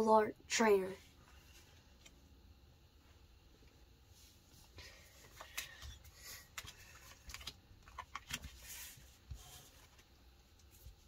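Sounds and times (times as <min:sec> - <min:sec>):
trading cards clicking and rustling: 0:05.2 - 0:08.8.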